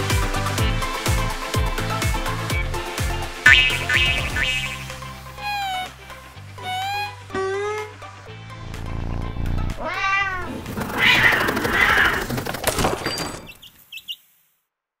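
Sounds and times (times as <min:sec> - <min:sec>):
low background music: 0:00.0 - 0:10.8
short high chirps: 0:03.5 - 0:05.0
cat meow: 0:09.8 - 0:12.2.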